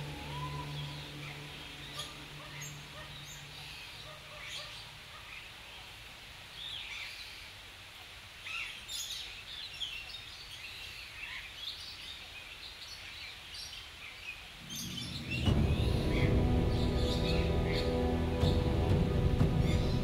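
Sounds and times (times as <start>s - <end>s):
bird chirps and calls: 0.0s - 5.4s, 8.5s - 16.3s.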